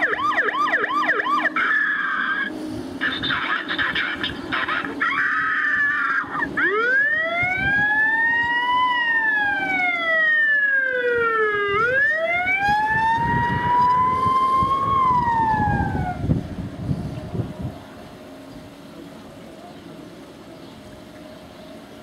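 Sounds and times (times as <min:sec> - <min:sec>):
wailing fire engine siren: 0:00.0 - 0:02.6, 0:04.9 - 0:18.4.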